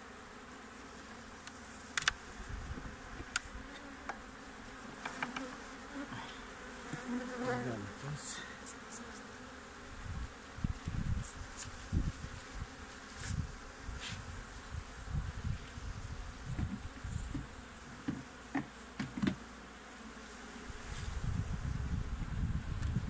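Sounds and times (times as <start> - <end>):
honeybees buzzing: 0.0 - 23.0
wooden clicks of hive tool: 1.4 - 2.2, 3.2 - 4.2, 5.0 - 5.6, 16.6 - 19.4
low thumps of handling: 16.5 - 19.4.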